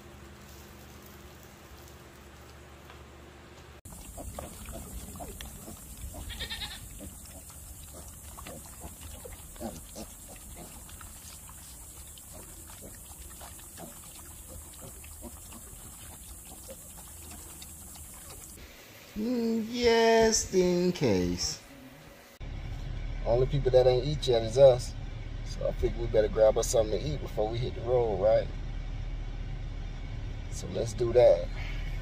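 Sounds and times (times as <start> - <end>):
pigs chewing and smacking: 3.8 - 18.6
pig squealing: 3.9 - 18.6.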